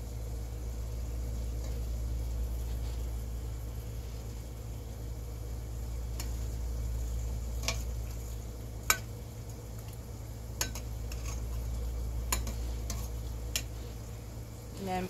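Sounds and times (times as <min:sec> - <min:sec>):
steady low hum: 0:00.0 - 0:15.0
metal spoon clinking on pot: 0:10.6 - 0:11.4.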